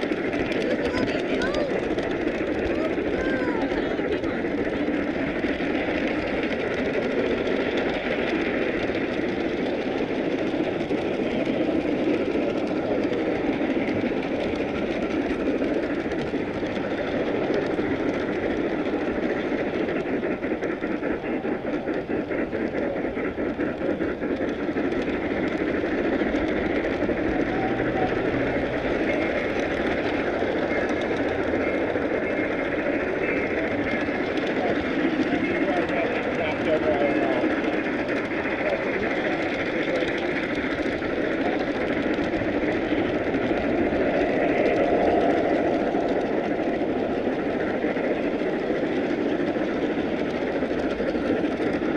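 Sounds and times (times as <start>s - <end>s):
faint rapid clicks: 0.0s - 51.9s
model train wheels rumbling on rails: 0.0s - 51.9s.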